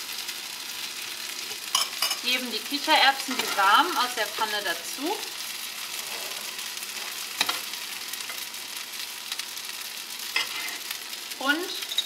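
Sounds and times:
pasta sizzling in a frying pan: 0.0 - 12.0
metal spoon clink: 1.7 - 2.2.

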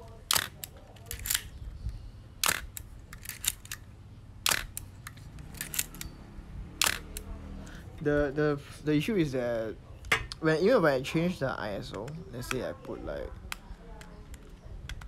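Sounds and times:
camera shutter clicking: 4.4 - 6.0, 6.8 - 7.3
small mechanism clicks: 4.4 - 6.2, 6.8 - 7.3.

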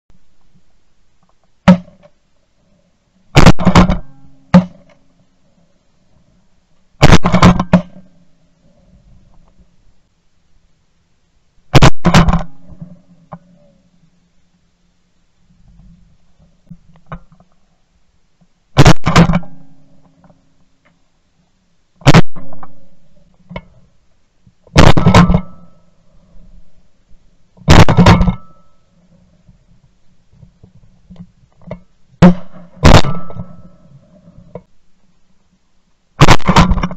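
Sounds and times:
shotgun blasts: 3.4 - 4.9, 7.0 - 8.1, 11.7 - 12.9, 18.8 - 19.7, 22.0 - 22.8, 24.7 - 25.7, 27.7 - 28.6, 32.2 - 33.7, 36.2 - 36.9.

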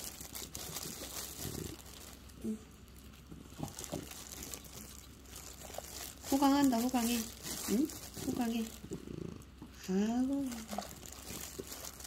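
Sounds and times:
dog chewing food: 0.0 - 2.3.

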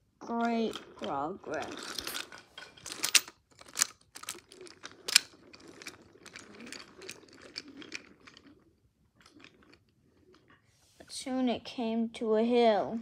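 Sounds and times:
toy train rattling on wooden track: 0.2 - 10.6.

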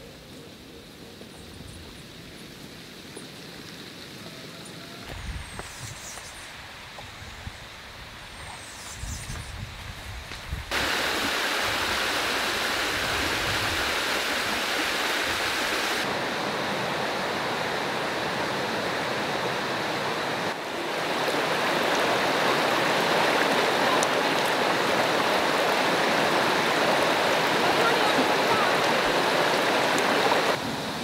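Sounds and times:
water rushing over rocks: 10.7 - 31.0.

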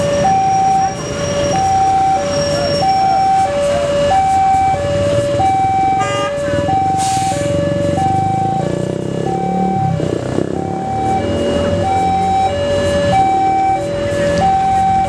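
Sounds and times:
road traffic rumbling: 0.0 - 15.0
two-tone level crossing alarm: 0.0 - 15.0.

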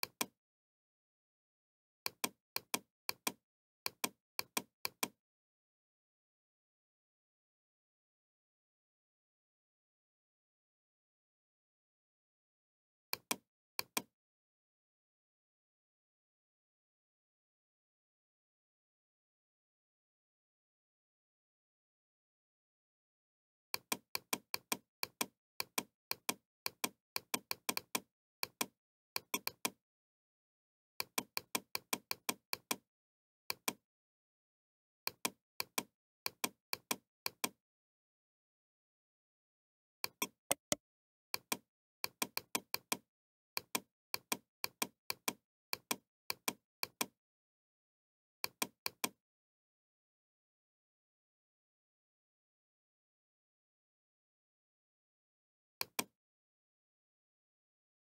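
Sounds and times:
computer mouse clicks: 2.1 - 5.2, 13.2 - 14.1, 40.0 - 40.8, 48.4 - 49.2, 55.8 - 56.1.

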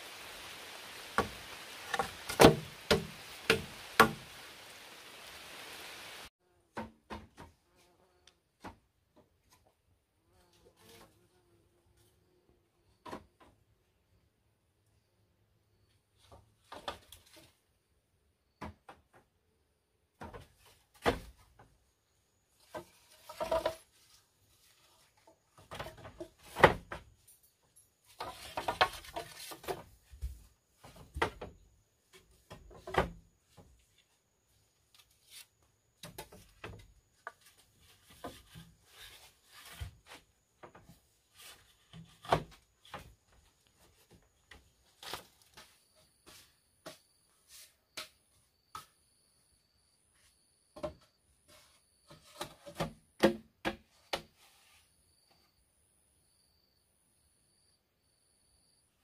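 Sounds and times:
bamboo tubes knocking: 1.2 - 4.3
bamboo rubbing: 22.5 - 26.6, 28.1 - 30.2, 33.8 - 35.7, 37.2 - 40.3.

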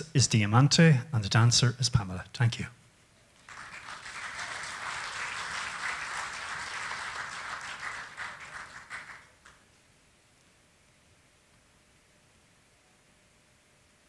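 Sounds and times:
audience applauding: 3.4 - 9.6.

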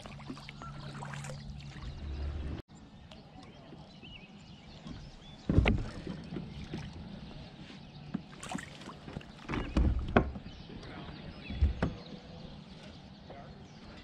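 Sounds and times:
thumps on kayak: 5.0 - 6.9, 8.2 - 10.5.

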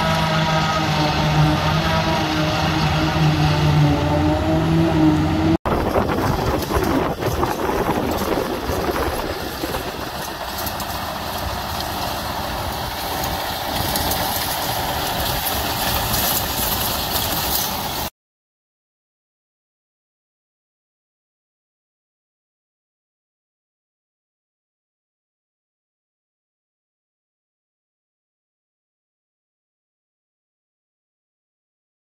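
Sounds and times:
rotary rake machinery noise: 0.0 - 18.1
tractor engine running: 0.0 - 18.1.

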